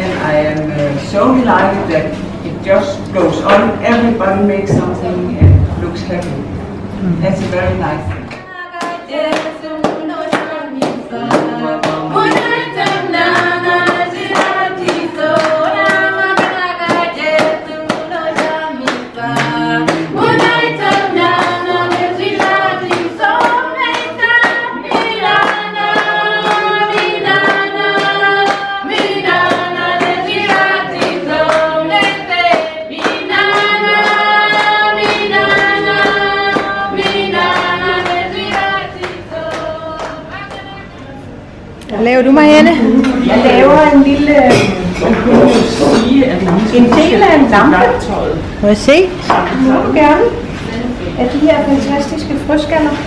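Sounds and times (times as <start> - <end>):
group singing together: 6.5 - 41.8, 42.4 - 53.0
hand clapping: 8.2 - 40.7.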